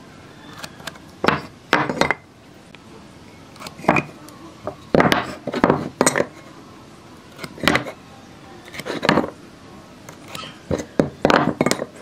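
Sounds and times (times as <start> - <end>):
metal and wood knocking on workbench: 1.2 - 2.2, 4.9 - 6.3, 9.0 - 9.3, 10.7 - 12.0.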